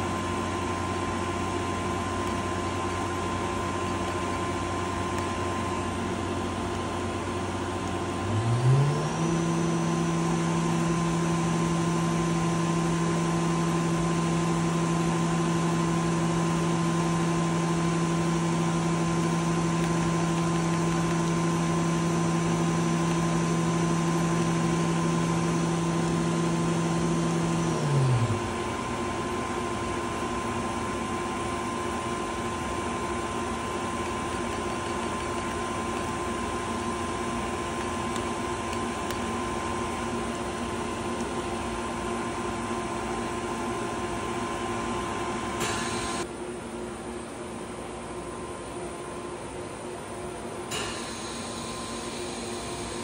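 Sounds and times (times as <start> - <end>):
lathe spindle whine: 8.2 - 46.3.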